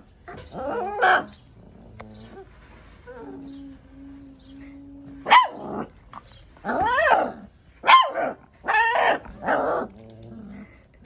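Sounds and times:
puppy yapping barks: 5.2 - 5.9, 6.6 - 9.9.

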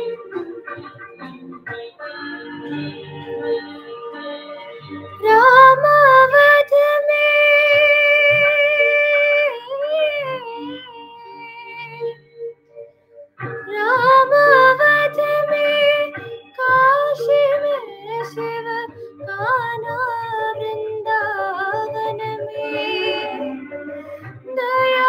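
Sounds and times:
woman singing: 1.8 - 12.4, 13.5 - 25.0.

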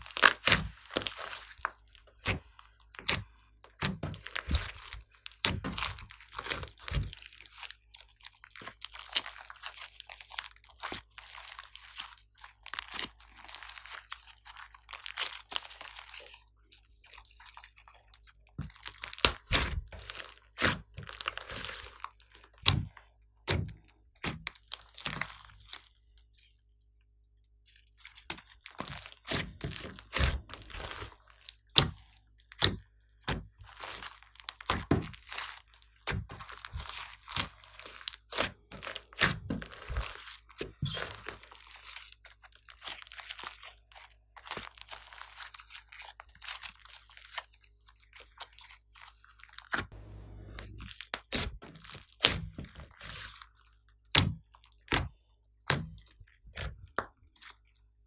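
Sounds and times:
slime crackling and popping: 0.0 - 22.9, 28.0 - 49.9.

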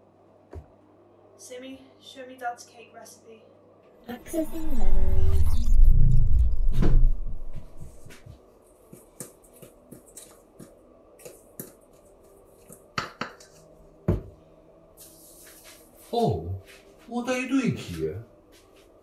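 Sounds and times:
low rumble: 4.3 - 8.1.

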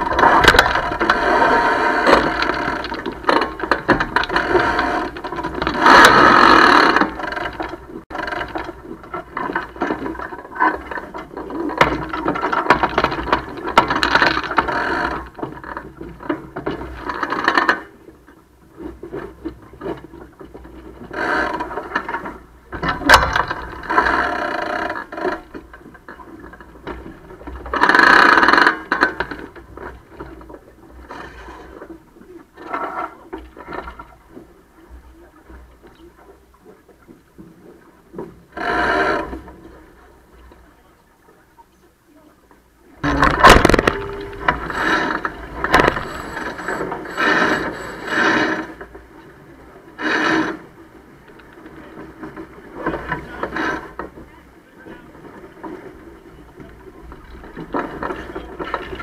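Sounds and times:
lines running through hardware: 42.9 - 48.7
winches ratcheting: 43.0 - 48.8.

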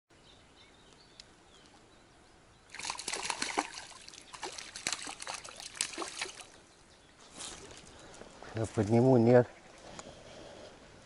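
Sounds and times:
fish splashing in water: 2.7 - 6.6.

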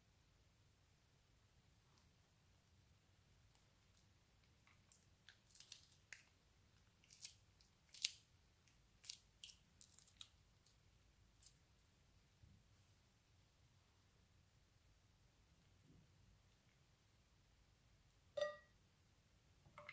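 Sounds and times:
crisp clicks and crackles: 3.5 - 11.6.

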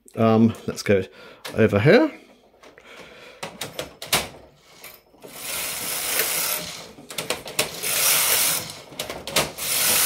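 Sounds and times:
knitting machine clicks and knocks: 3.4 - 10.0
knitting carriage rasping slide: 4.6 - 7.0, 7.6 - 10.0.

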